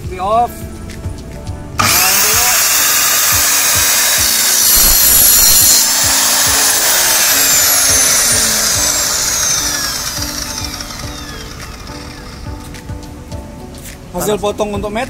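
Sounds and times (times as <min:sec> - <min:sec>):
miter saw cutting metal tube: 0:01.8 - 0:12.5.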